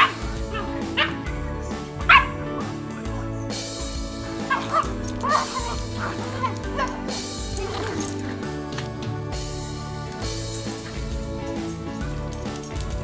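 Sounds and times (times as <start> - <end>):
dogs yipping and barking: 0.0 - 2.9, 4.2 - 8.7
background music: 0.0 - 13.0.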